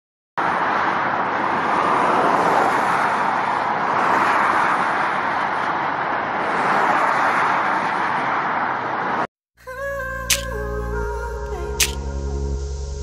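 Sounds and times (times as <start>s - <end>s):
highway traffic rushing: 0.4s - 9.3s.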